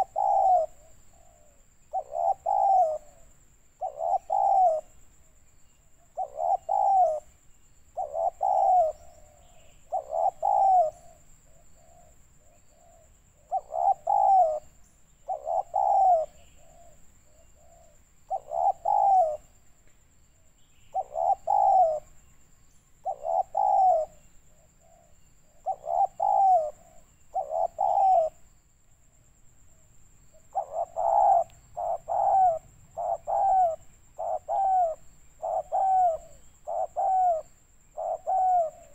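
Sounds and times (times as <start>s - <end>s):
dove cooing: 0.0s - 5.0s, 6.0s - 7.3s, 7.9s - 19.5s, 20.9s - 22.2s, 23.0s - 28.5s, 30.3s - 38.9s.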